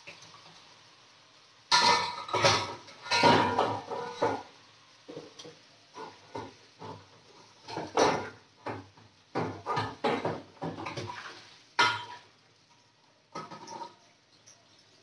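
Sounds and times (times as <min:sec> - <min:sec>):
metal cookware clanking in a sink: 0:01.7 - 0:04.5, 0:07.6 - 0:12.3, 0:13.3 - 0:14.6.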